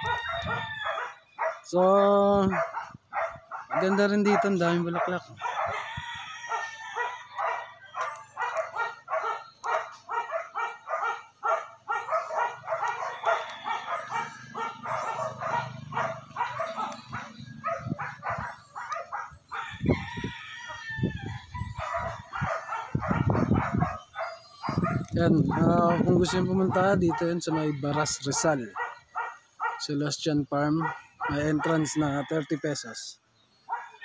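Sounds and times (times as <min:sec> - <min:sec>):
animal calls: 0:06.5 - 0:20.0.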